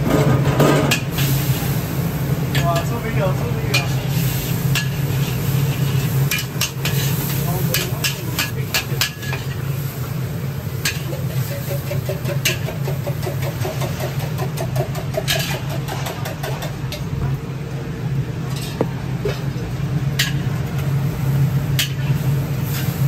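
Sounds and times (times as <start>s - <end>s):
metal utensils scraping a wok: 3.6s - 9.6s, 10.8s - 16.8s, 18.5s - 18.8s, 21.7s - 23.0s.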